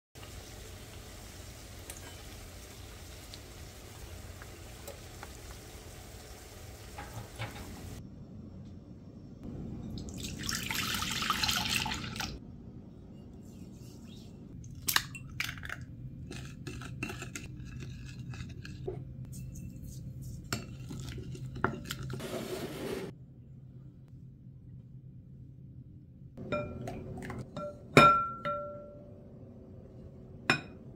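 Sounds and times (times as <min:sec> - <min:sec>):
low steady hum: 0:00.2 - 0:22.1, 0:23.1 - 0:30.9
clinks and taps on glass bowl: 0:27.6 - 0:29.0.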